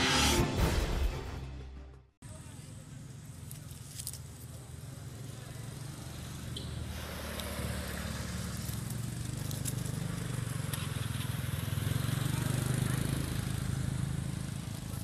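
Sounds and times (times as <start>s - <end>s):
engine humming: 2.2s - 15.0s
rushing hiss: 6.9s - 8.5s.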